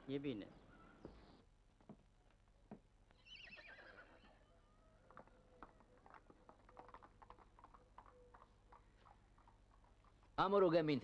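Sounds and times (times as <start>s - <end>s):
faint horse whinny: 3.2s - 4.4s
hooves clip-clopping: 5.0s - 10.4s.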